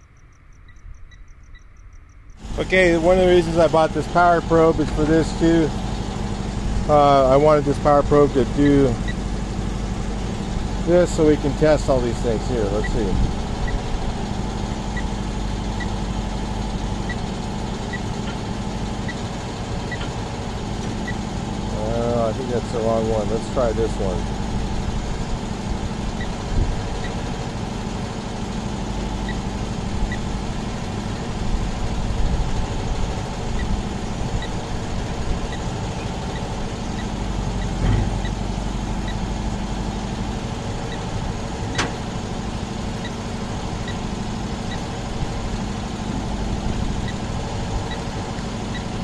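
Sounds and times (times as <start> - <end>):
truck engine idling: 0.0 - 49.0
sharp click: 41.7 - 42.0.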